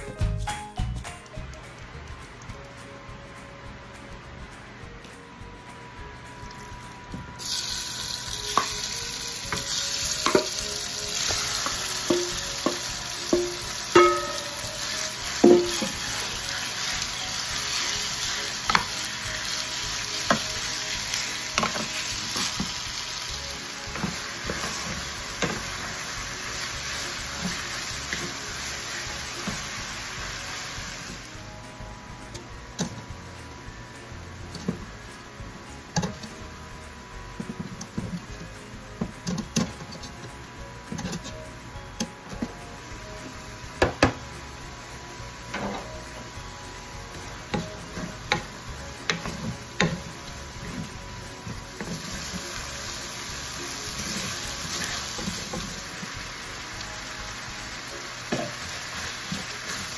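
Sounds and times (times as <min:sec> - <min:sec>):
chicken sizzling in hot oil: 0:07.4 - 0:32.1, 0:39.1 - 0:59.9.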